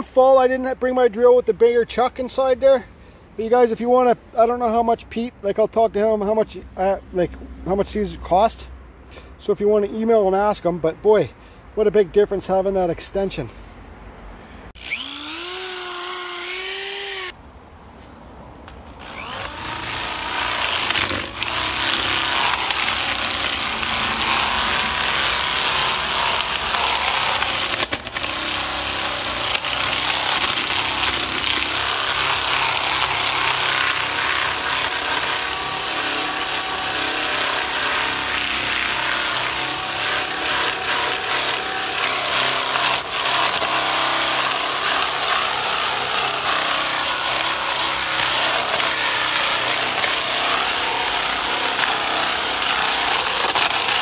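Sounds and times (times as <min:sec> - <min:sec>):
drill motor whine: 0:14.8 - 0:17.3, 0:19.0 - 0:27.2.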